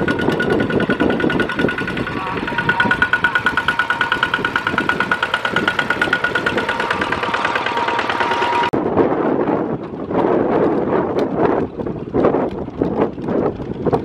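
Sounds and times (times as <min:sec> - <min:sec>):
diesel tractor engine chugging: 0:00.0 - 0:08.8
duller rougher tractor engine: 0:00.0 - 0:14.0.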